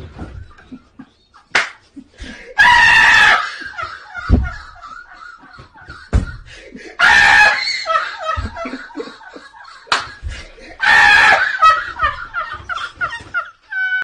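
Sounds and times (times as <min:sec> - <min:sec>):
men laughing: 0:00.2 - 0:14.0
shrieking laughter: 0:00.2 - 0:14.0
sharp slaps: 0:01.5 - 0:01.9, 0:09.9 - 0:10.3.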